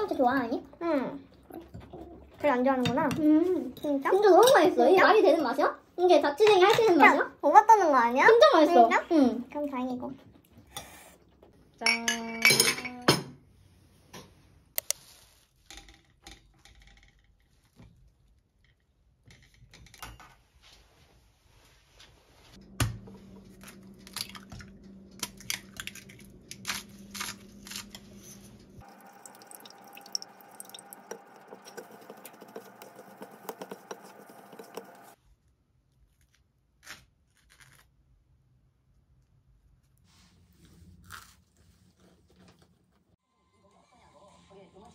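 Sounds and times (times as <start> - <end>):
kitchenware clicking and tapping: 1.7 - 4.8, 11.8 - 13.4, 28.9 - 35.2
steady low hum: 22.6 - 35.2.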